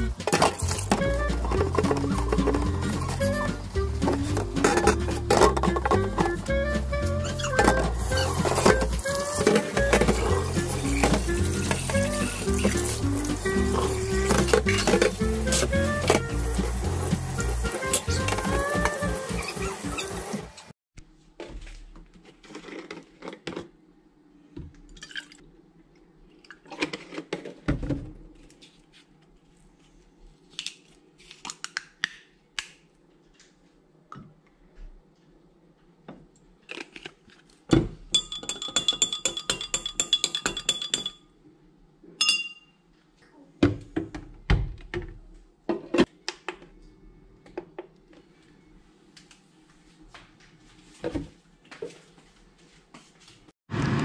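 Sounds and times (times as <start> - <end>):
dishes scraping in metal sink: 0.2 - 6.4, 7.2 - 16.4
spoon clinking in glass: 38.1 - 41.2, 42.2 - 42.8.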